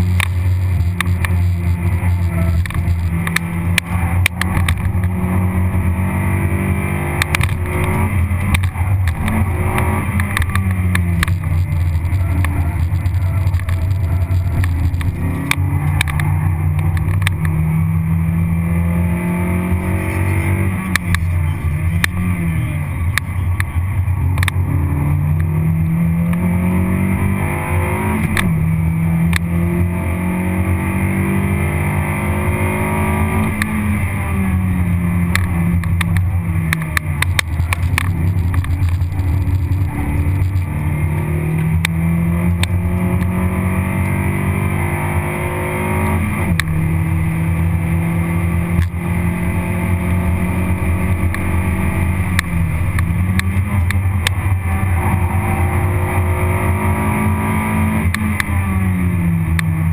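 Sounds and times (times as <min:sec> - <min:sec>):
sharp clicks: 0:00.0 - 0:05.2, 0:07.2 - 0:17.6, 0:20.8 - 0:22.2, 0:23.1 - 0:24.6, 0:35.3 - 0:43.3, 0:51.2 - 0:55.2
car engine accelerating: 0:00.0 - 0:59.9.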